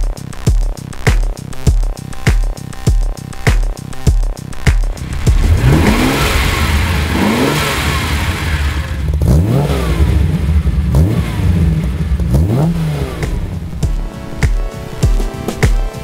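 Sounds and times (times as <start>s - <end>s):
car engine revving: 4.9s - 13.8s.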